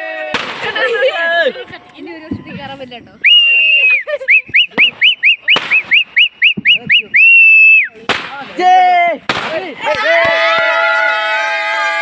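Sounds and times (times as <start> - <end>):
sharp crack: 0.2 - 1.0, 4.5 - 7.1, 7.8 - 10.8
shrill whistle toots: 3.2 - 8.0.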